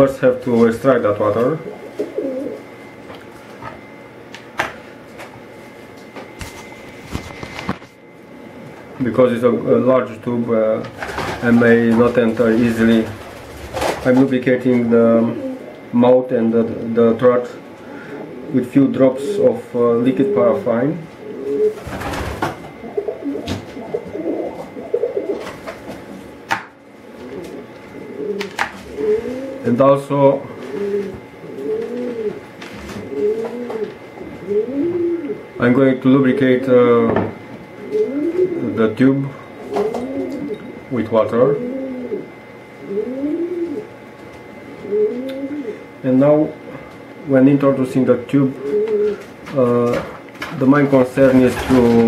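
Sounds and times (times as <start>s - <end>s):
faint hum with high tone: 0.0s - 52.0s
pigeon cooing: 1.4s - 3.0s, 14.9s - 16.0s, 17.4s - 26.2s, 27.0s - 44.0s, 44.7s - 46.9s, 48.4s - 50.2s.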